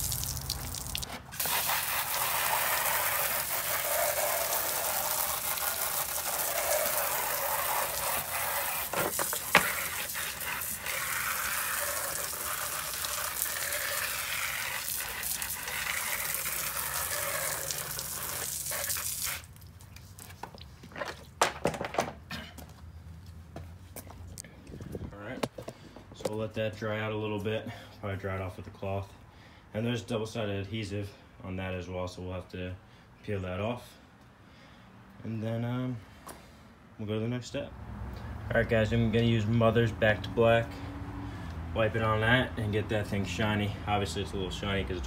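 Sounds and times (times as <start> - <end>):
water spraying from a hose: 0.0 - 20.2.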